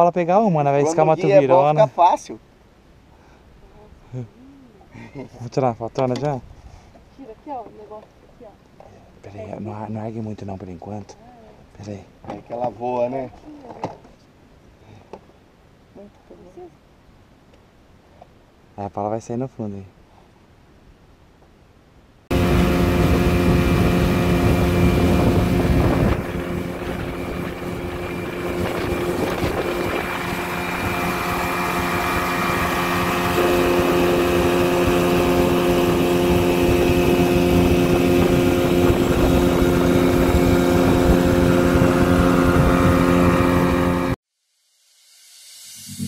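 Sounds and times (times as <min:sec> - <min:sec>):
outboard motor running: 0:22.3 - 0:44.2
wind on microphone: 0:22.3 - 0:44.2.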